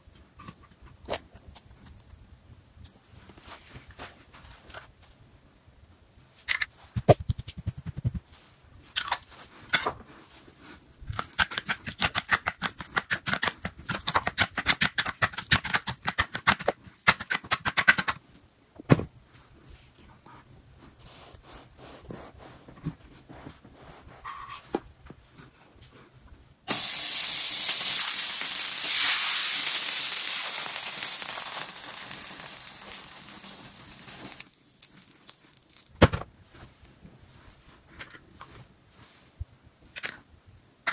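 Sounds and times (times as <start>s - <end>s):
quick clicking kitchen strokes: 11.2s - 18.2s
buns sizzling in frying pan: 26.7s - 35.6s.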